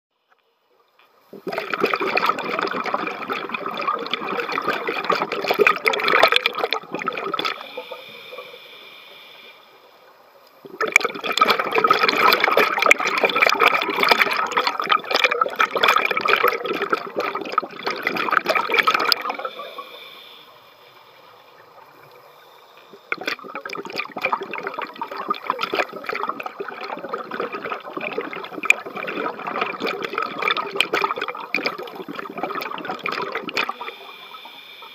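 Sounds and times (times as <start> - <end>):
underwater exhaled bubbles: 1.3 - 8.6, 10.6 - 34.9
regulator hiss on inhale: 7.5 - 10.6, 19.2 - 23.1, 33.6 - 34.9.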